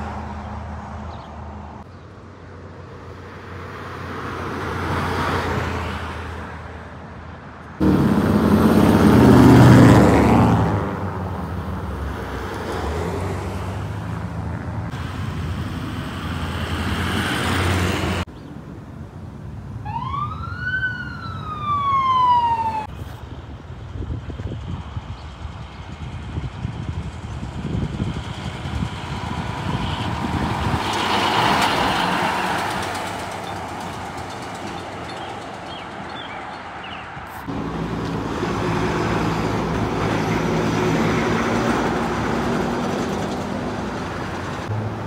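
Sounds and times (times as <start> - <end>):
truck engine and tyre noise: 0.0 - 45.0
vehicle passing: 7.8 - 18.3, 27.6 - 45.0
siren wail: 19.8 - 22.9.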